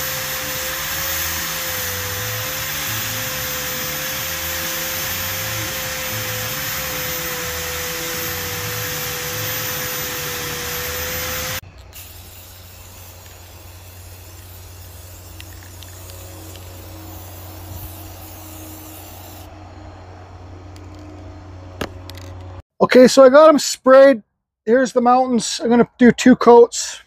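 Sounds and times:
aerosol can spraying: 0.0s - 19.5s
wire brush whirring on wood: 0.0s - 19.6s.

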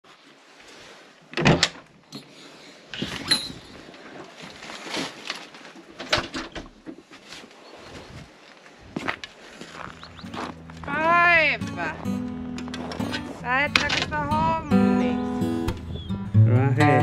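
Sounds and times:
footsteps: 7.1s - 14.7s.

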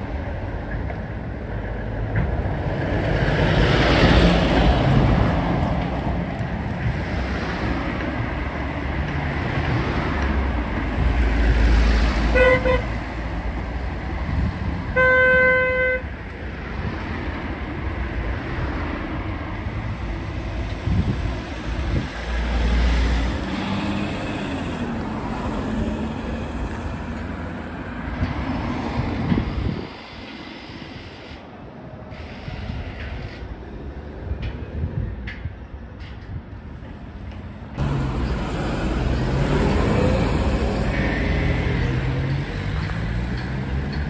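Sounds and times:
passing road traffic: 0.0s - 44.0s
vehicle horn: 12.3s - 12.9s, 14.9s - 16.1s.

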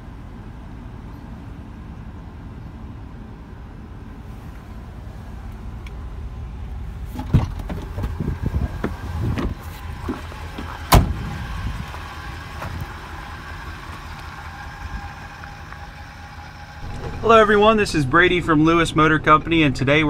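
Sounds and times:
steady low rumble: 0.0s - 20.0s
van door slamming: 7.1s - 11.5s, 16.8s - 17.9s.

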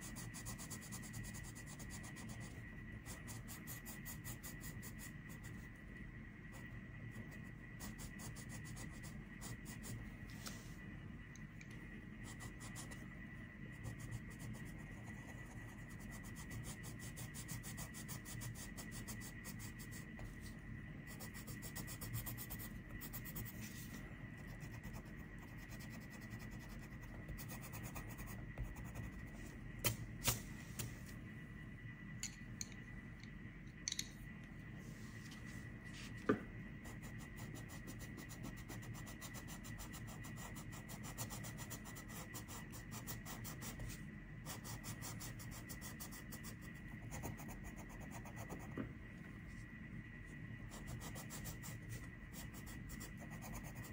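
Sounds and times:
pencil scratching on paper: 0.0s - 5.7s, 6.5s - 10.0s, 13.7s - 29.4s, 36.8s - 48.8s, 50.7s - 53.9s
steady low hum: 0.0s - 53.9s.

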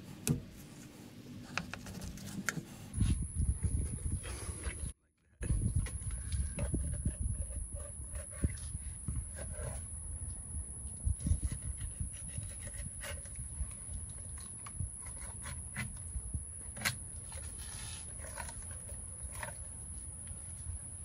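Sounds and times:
steady low rumble: 2.9s - 17.8s.

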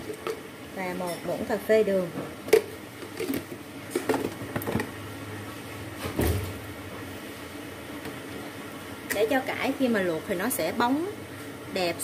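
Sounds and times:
pot of water heating: 0.0s - 5.8s, 6.6s - 12.0s.

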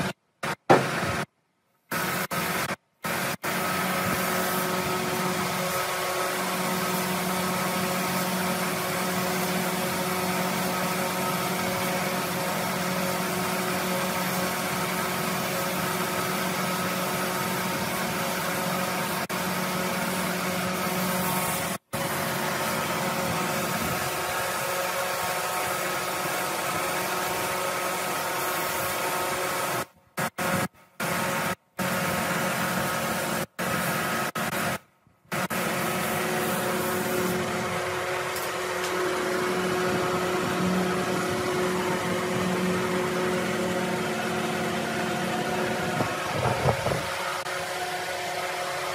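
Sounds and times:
spray gun hissing: 1.9s - 37.8s.

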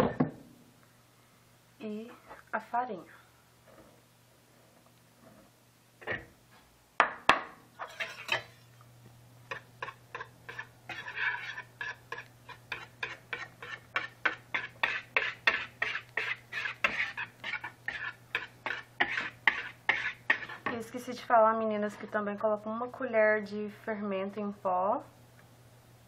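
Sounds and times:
whisk beating batter in plastic bowl: 9.5s - 20.8s.

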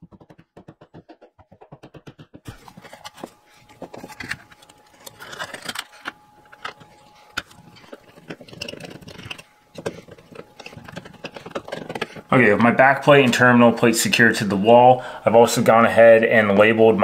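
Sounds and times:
fast rattle of taps: 0.0s - 2.5s
plastic clicks and scrapes: 2.6s - 12.3s.

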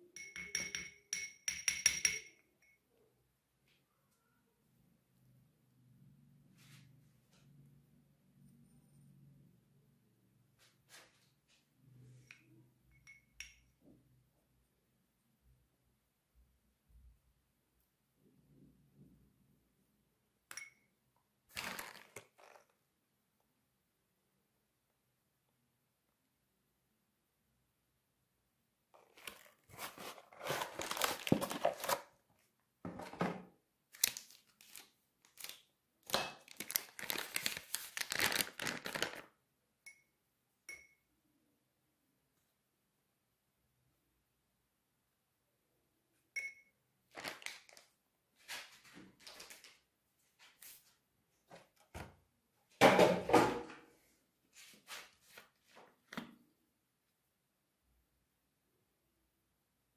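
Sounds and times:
foil packet crinkling and tearing: 29.1s - 32.1s, 33.9s - 35.7s, 36.4s - 39.3s, 47.2s - 47.9s.

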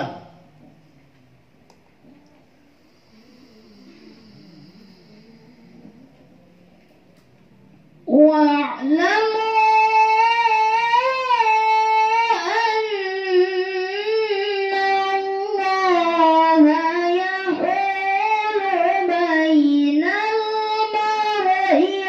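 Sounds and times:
high voice chanting: 0.0s - 22.0s.

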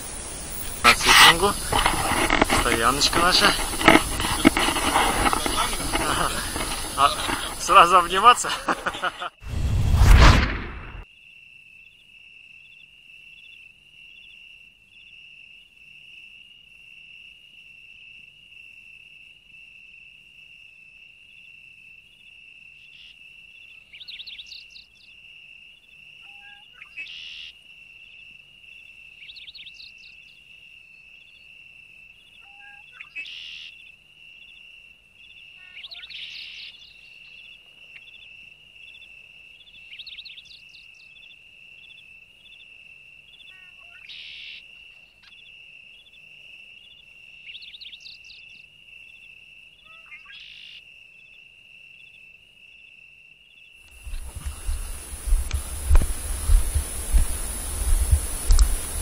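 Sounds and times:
insects trilling: 0.0s - 9.4s, 11.0s - 59.0s
bird chirps: 22.9s - 25.1s, 34.4s - 42.7s, 43.3s - 46.2s, 46.8s - 50.8s.

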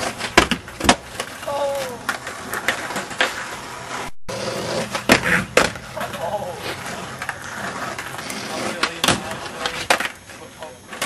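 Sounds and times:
skateboard wheels rumbling on concrete: 0.0s - 11.0s
person shouting: 1.4s - 2.1s, 6.0s - 6.6s.

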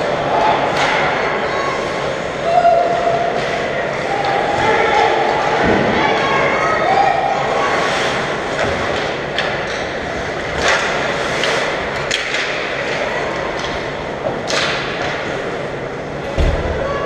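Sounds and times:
hockey sticks and puck clacking: 0.0s - 1.3s, 7.8s - 15.6s.

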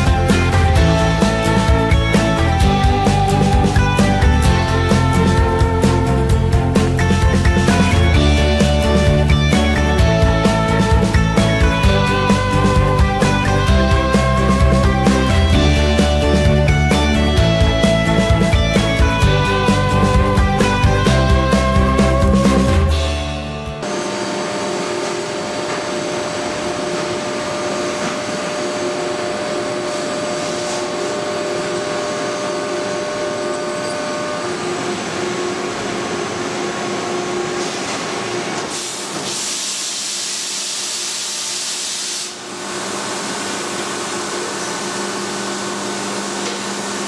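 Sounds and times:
milling machine whirring: 23.8s - 39.0s
loud high hiss: 38.7s - 42.4s.

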